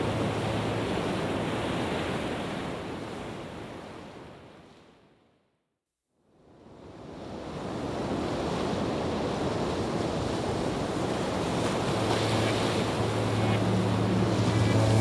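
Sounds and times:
low droning background music: 11.8 - 15.0
waterfall roaring: 11.9 - 15.0.

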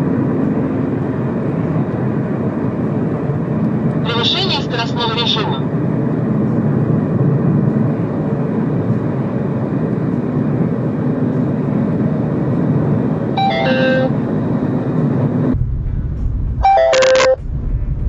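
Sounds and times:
car cabin road noise: 0.0 - 18.0
electronic warning chime: 13.4 - 14.2, 16.6 - 17.4.

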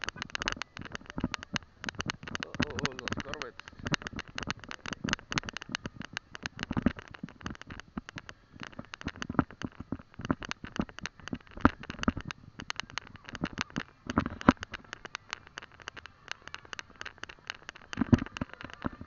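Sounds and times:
microphone handling noise: 0.0 - 19.0.

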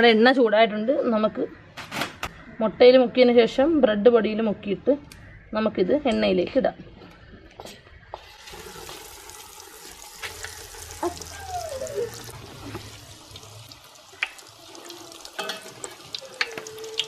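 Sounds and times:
deep-frying sizzle with pops: 8.1 - 17.0.

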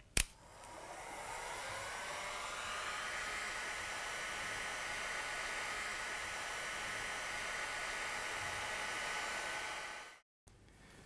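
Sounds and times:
hot air gun blowing: 0.4 - 10.2.

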